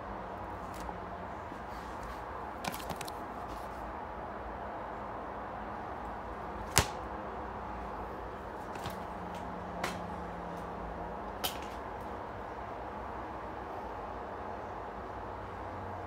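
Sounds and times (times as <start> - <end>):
plastic case snapping open: 2.6 - 3.2.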